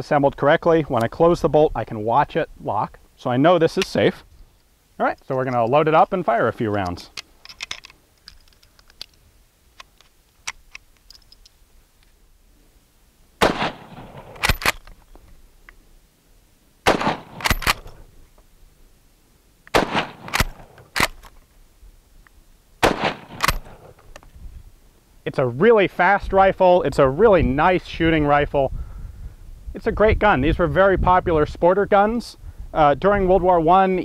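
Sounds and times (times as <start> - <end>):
cartridges loading metallic clicks: 5.2 - 9.2, 9.8 - 11.6, 13.4 - 15.0, 16.9 - 18.0, 19.7 - 21.4, 22.9 - 24.2
rifle bolt clacking: 6.7 - 9.2, 9.8 - 11.6, 13.4 - 15.0, 16.9 - 18.0, 19.7 - 21.4, 22.8 - 24.3
rifle shots: 13.4 - 14.8, 16.8 - 18.0, 19.7 - 21.2, 22.8 - 24.0.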